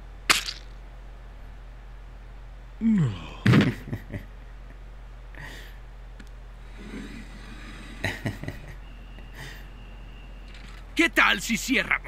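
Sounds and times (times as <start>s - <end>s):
steady low hum: 0.0s - 12.0s
soft breath sounds: 5.3s - 6.0s, 9.3s - 9.8s.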